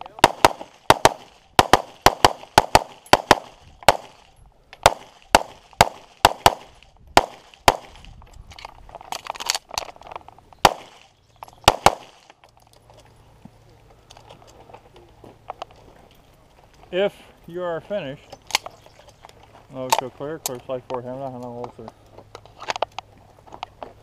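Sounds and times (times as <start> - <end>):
pistol shots: 0.2 - 8.0, 10.6 - 12.3.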